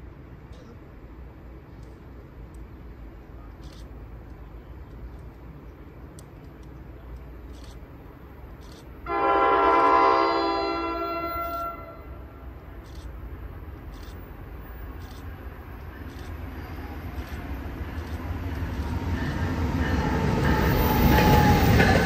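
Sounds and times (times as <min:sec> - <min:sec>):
train horn blast: 0:09.0 - 0:12.4.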